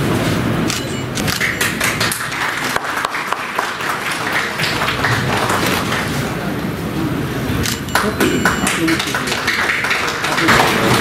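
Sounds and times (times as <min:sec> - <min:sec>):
audience applauding: 0:01.4 - 0:06.5, 0:07.9 - 0:11.0.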